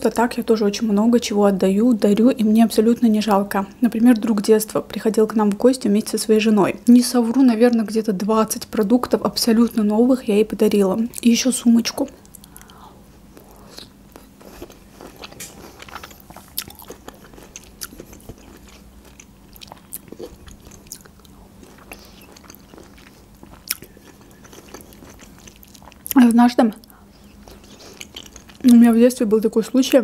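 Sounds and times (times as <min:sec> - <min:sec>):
woman chewing wet mouth sounds: 0:13.4 - 0:28.8.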